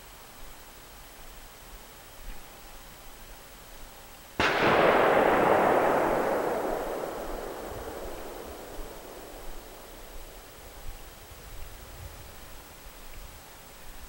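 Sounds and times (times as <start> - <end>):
noisy rumble: 4.4 - 10.8
loud bang: 4.4 - 10.9.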